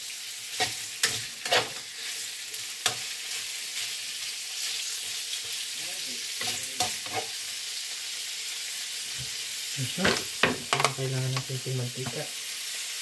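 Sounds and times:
meat sizzling in oil: 0.0s - 13.0s
utensil knocking against pan: 10.0s - 11.4s.

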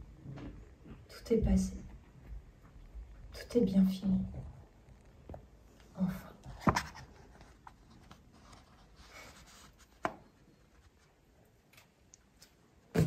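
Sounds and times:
soft papery rustle: 6.4s - 12.7s.

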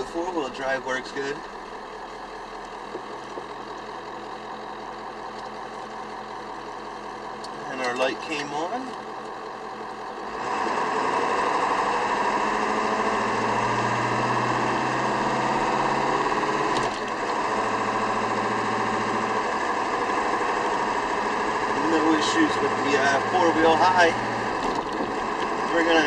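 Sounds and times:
diesel truck engine rough drone: 0.0s - 26.0s.

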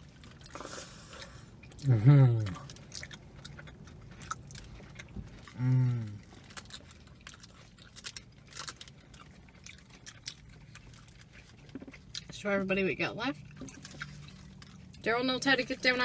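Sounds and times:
people chewing food: 0.0s - 16.0s
person humming mmm: 5.6s - 6.2s.

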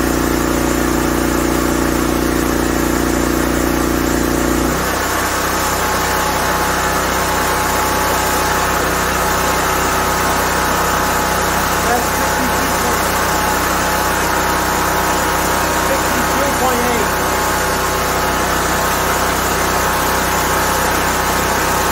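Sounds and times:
generator running: 0.0s - 21.9s.

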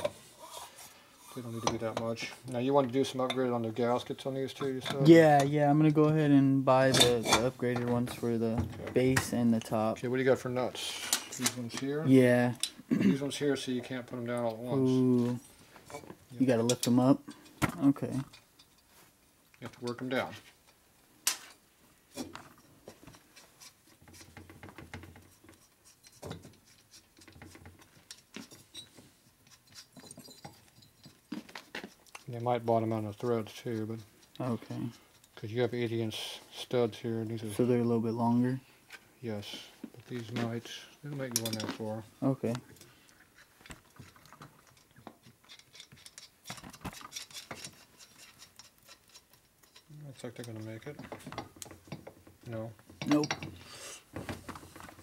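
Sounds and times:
faint metal clicks and scrapes: 15.3s - 35.9s, 39.9s - 55.0s.

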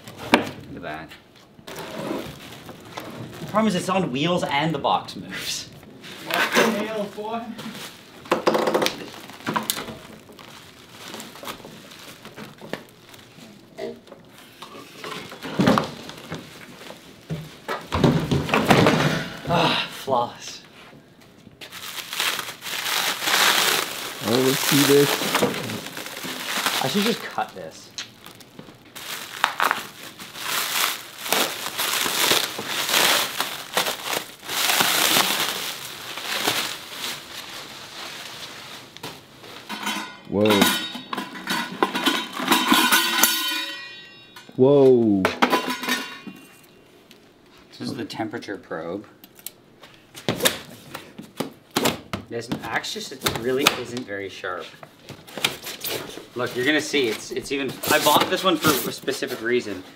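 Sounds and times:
plastic wrap crinkling: 1.6s - 17.7s, 21.5s - 39.7s, 53.1s - 59.9s.

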